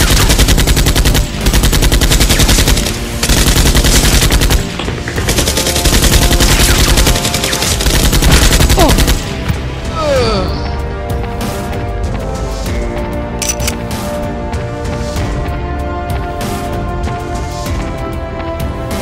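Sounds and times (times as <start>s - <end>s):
machine-gun fire: 0.0s - 9.3s
background music: 0.0s - 19.0s.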